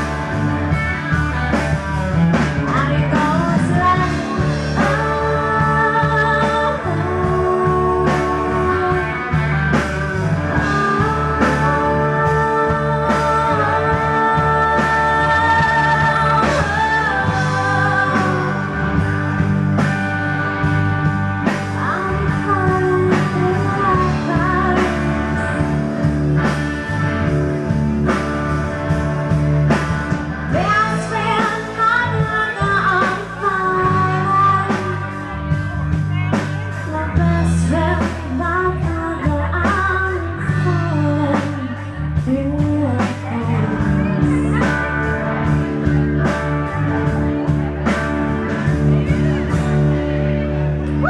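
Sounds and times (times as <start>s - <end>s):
bass guitar: 0.0s - 51.0s
drum kit: 0.0s - 51.0s
electric and acoustic guitars: 0.0s - 51.0s
woman singing: 2.6s - 9.8s, 10.5s - 19.2s, 21.4s - 25.8s, 30.5s - 47.0s.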